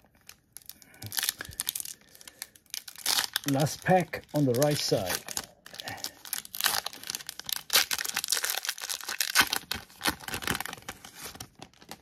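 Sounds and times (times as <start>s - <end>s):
wrapper tearing and crinkling: 0.0s - 12.0s.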